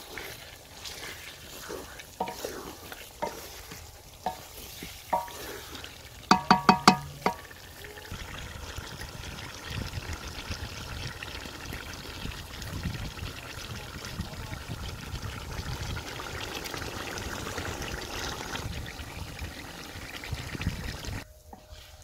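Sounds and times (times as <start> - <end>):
chicken sizzling in oil: 0.0 - 22.0
wooden spoon knocking metal pot: 2.2 - 2.6, 4.2 - 5.5, 6.3 - 7.5.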